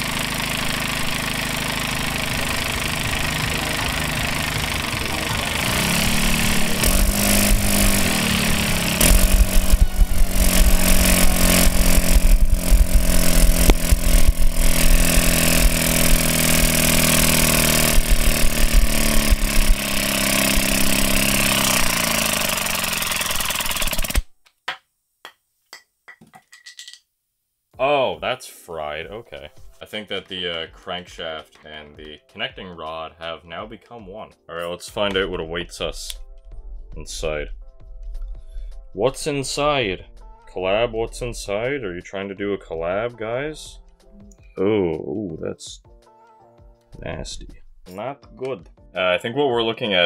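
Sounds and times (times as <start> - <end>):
air-powered engine running: 0.0 - 24.3
rapid engine knocking: 0.0 - 24.3.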